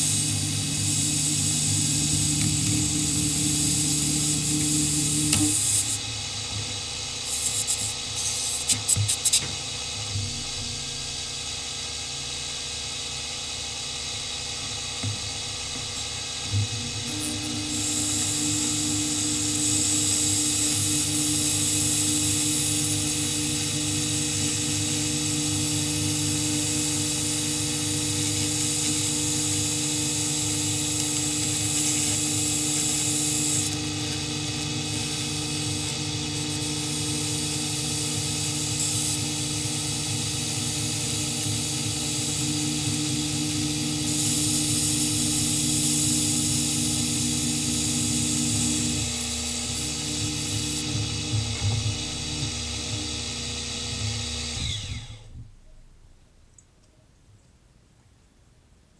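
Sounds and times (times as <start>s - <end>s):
high hiss: 0.0s - 10.2s, 10.9s - 42.4s
milling machine cutting acrylic: 0.0s - 10.2s, 14.2s - 55.4s.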